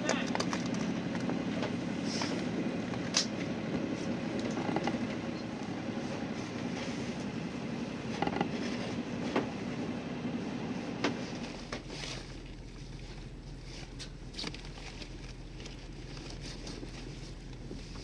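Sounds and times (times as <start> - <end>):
boat engine running: 0.0 - 18.0
knocks and clicks from rigging: 8.2 - 8.6.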